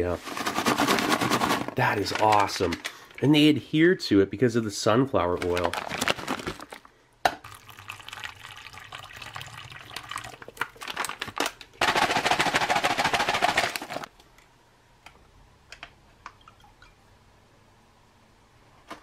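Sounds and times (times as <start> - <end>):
foil pouch crinkling: 0.2 - 3.0, 5.3 - 6.9, 10.6 - 14.1
liquid pouring into a glass: 7.4 - 10.9.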